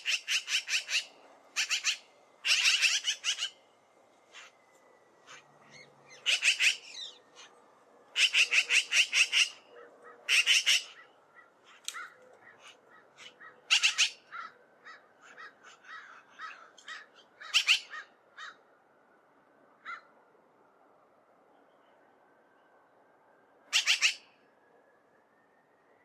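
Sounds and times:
magpies rattling chatter: 0.0 - 3.6, 5.2 - 9.6, 10.2 - 11.1, 11.7 - 14.5.

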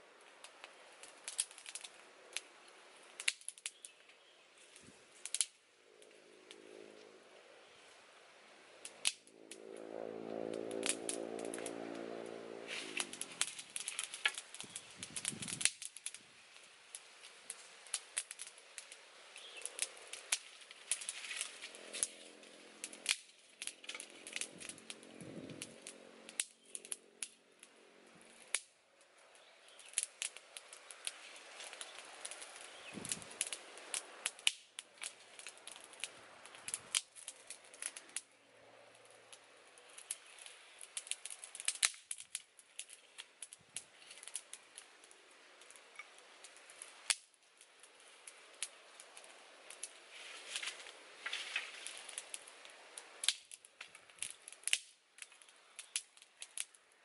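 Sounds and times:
campfire crackling and popping: 0.0 - 57.0
sticks being moved: 12.7 - 14.7, 50.1 - 52.4.

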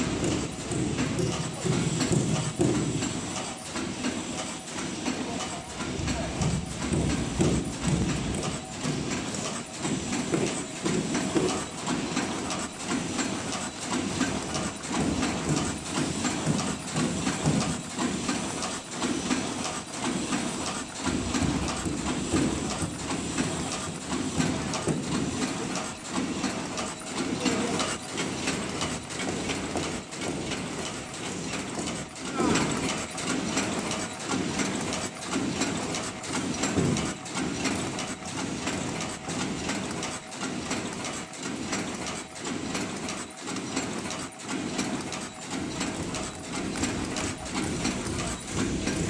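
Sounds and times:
rhythmic machine clatter: 0.0 - 49.0.

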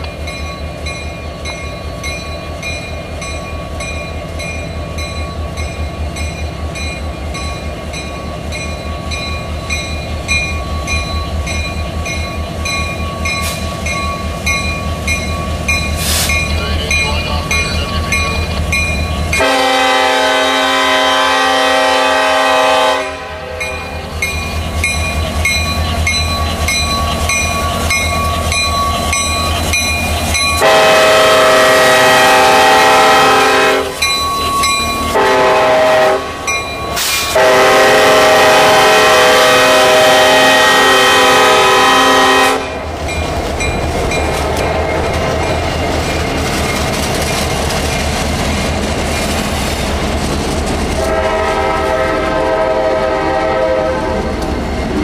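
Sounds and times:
diesel locomotive engines rumbling: 0.0 - 55.0
train air horn: 19.4 - 23.8, 30.6 - 34.0, 35.1 - 36.4, 37.0 - 42.8, 51.0 - 54.4.

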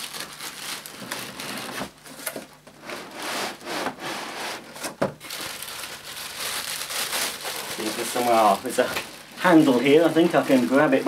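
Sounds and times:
plastic wrapping rustling: 0.0 - 3.7, 4.6 - 11.0
cardboard scraping: 0.9 - 5.0.

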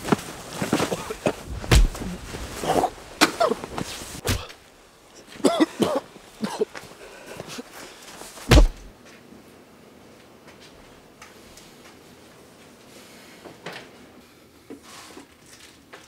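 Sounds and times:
heavy thumps and scuffling in snow: 0.0 - 4.5, 8.3 - 8.9.

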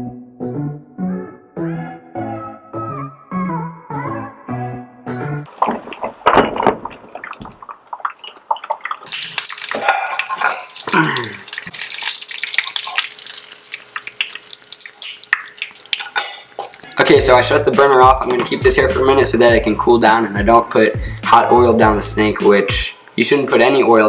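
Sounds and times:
fish sizzling in oil: 9.0 - 16.9.

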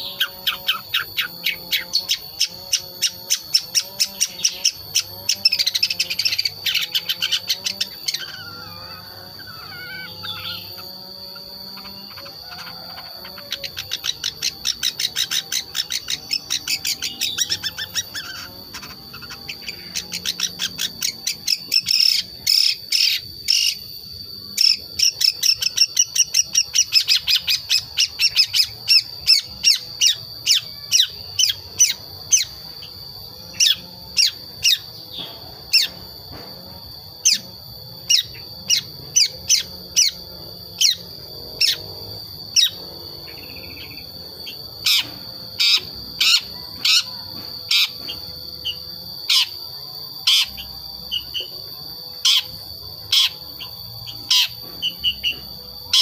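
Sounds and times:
shrike chattering calls: 0.0 - 22.1
high-pitched hum: 0.0 - 56.0.

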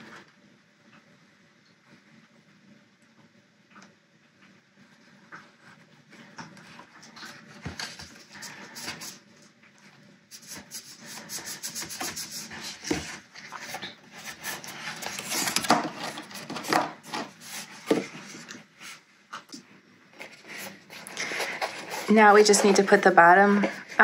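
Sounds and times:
paper box rubbing and sliding: 10.4 - 18.5, 20.2 - 24.0.

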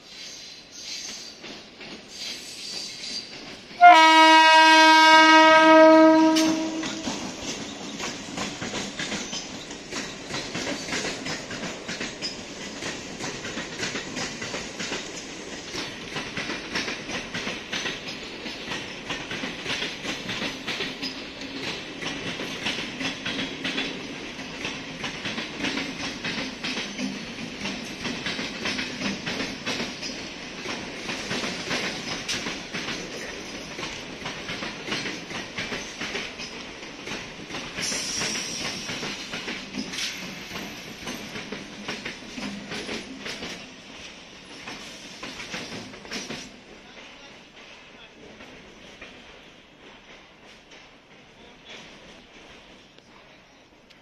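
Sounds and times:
train wheels clattering: 0.1 - 53.0
train horn blast: 3.8 - 7.4.

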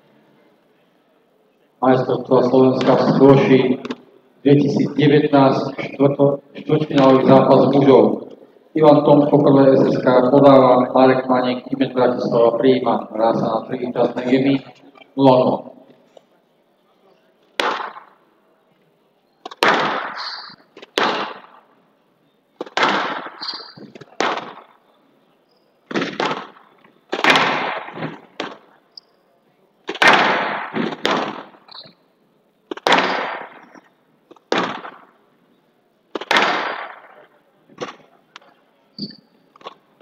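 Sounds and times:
ball slapping off walls: 3.8 - 4.0, 17.6 - 18.2, 19.4 - 21.7, 22.6 - 24.7, 25.9 - 28.7, 29.9 - 31.6, 32.7 - 35.1, 36.1 - 38.1
squash ball hit by rackets: 17.6 - 18.1, 19.4 - 21.5, 22.6 - 24.6, 25.9 - 28.6, 29.9 - 31.5, 32.7 - 33.6, 34.4 - 35.0, 36.2 - 36.9.

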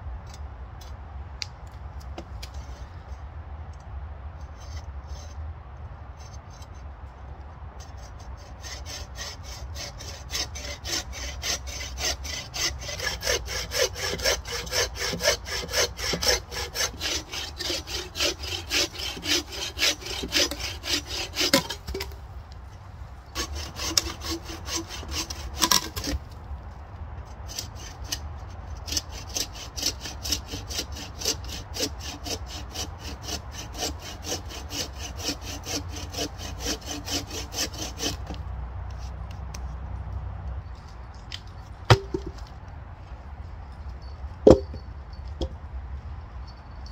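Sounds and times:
bow saw cutting log: 7.8 - 22.2, 23.3 - 26.4, 27.5 - 39.6, 41.9 - 42.5, 44.4 - 44.7.

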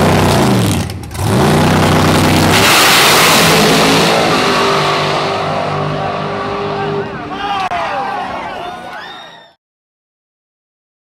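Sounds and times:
race car engine at full throttle: 0.0 - 7.7.

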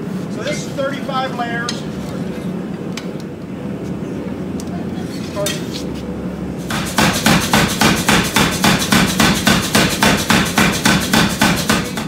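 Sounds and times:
power hammer striking steel: 6.7 - 12.0.

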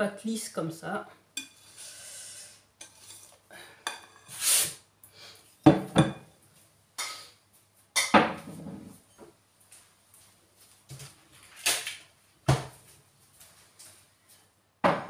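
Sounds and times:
bowl knocking on wooden worktop: 5.7 - 6.2.

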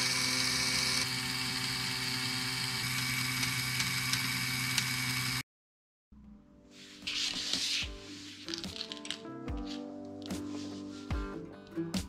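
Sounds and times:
toy electric motor whirring: 0.0 - 5.4.

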